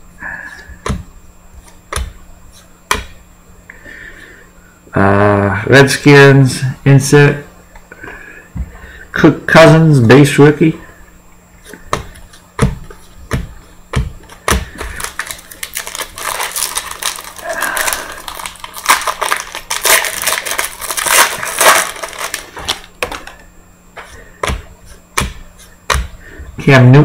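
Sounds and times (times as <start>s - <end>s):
foil wrapper tearing and crinkling: 14.9s - 23.2s.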